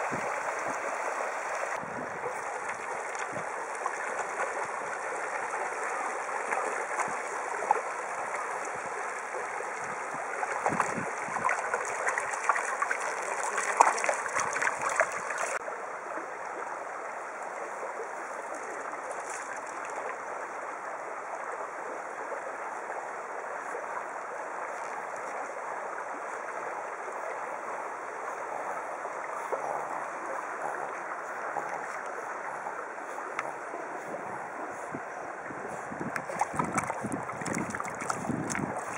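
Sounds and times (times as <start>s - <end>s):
river rushing over stones: 0.0s - 15.6s, 36.1s - 38.9s.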